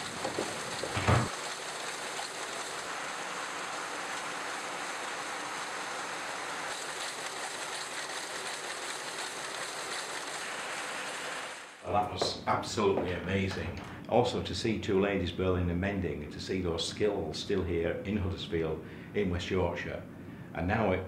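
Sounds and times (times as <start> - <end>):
weaving looms clattering: 6.7 - 10.7.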